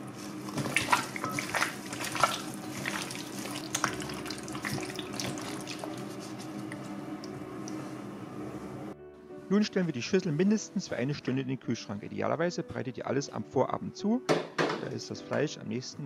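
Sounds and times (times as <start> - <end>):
wet squelching of raw chicken: 0.0 - 6.9.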